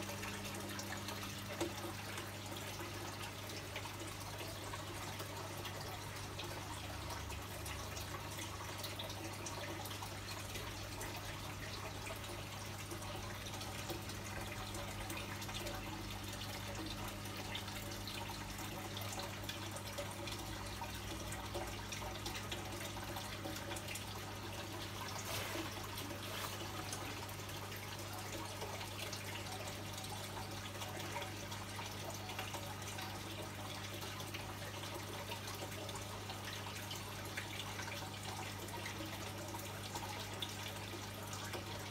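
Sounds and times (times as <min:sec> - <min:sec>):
water trickling and bubbling: 0:00.0 - 0:41.9.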